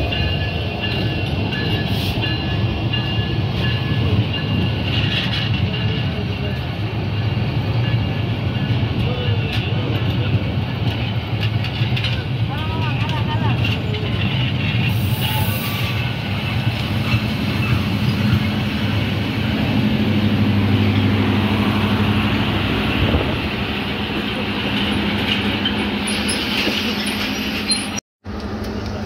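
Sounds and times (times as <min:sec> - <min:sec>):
train wheels rumbling on rails: 0:00.0 - 0:29.0
low hum of train generator: 0:15.0 - 0:29.0.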